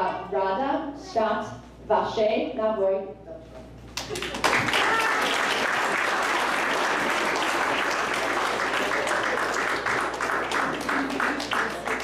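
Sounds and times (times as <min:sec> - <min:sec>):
people applauding: 0:04.0 - 0:12.0.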